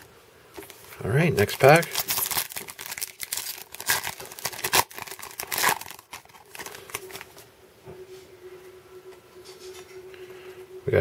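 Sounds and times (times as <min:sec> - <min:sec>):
cards rustling: 0:00.6 - 0:07.4
crinkly wrapper tearing: 0:01.4 - 0:07.4.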